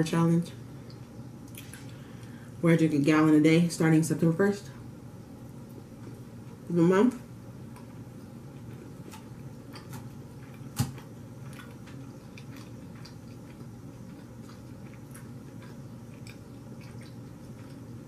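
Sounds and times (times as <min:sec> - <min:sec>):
low background hum: 0:00.0 - 0:18.0
person chewing salad: 0:07.7 - 0:18.0.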